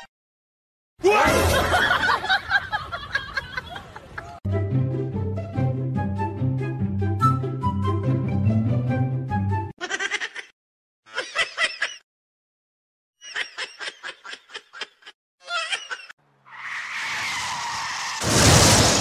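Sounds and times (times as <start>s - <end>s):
snickering laughter: 9.8s - 10.5s, 11.1s - 12.0s.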